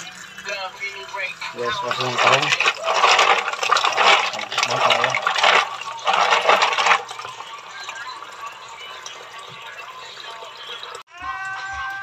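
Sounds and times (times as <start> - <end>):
water splashing with shells: 1.6 - 8.0.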